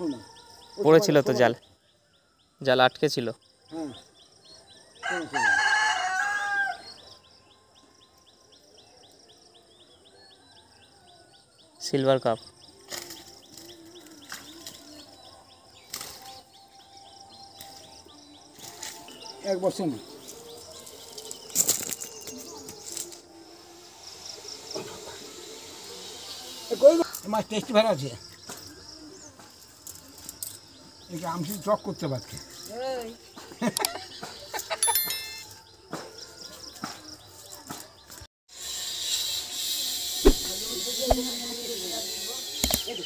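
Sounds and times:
rooster crowing: 0:05.0 - 0:06.9
faint high chirping: 0:34.0 - 0:37.6.

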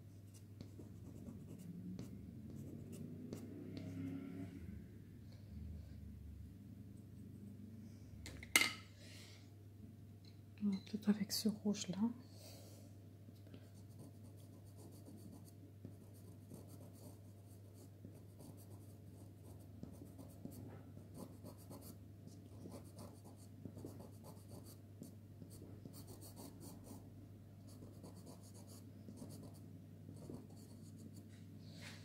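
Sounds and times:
pencil scratching on card: 0:13.8 - 0:27.0, 0:27.7 - 0:31.3.

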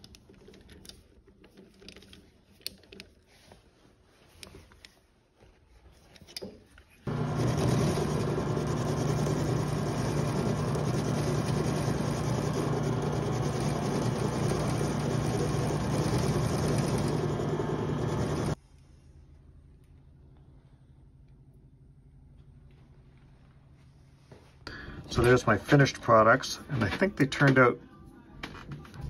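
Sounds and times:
metal lathe humming: 0:07.1 - 0:18.6.

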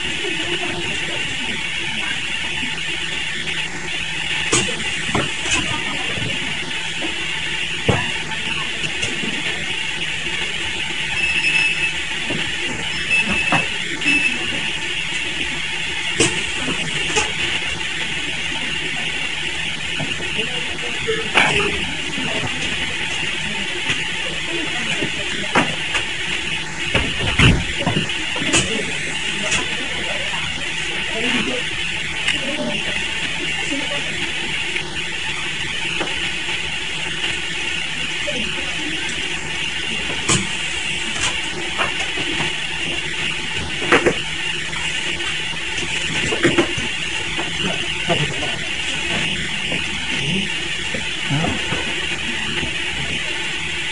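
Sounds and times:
machinery running: 0:00.0 - 0:53.9
short high-pitched tones: 0:11.1 - 0:12.0.

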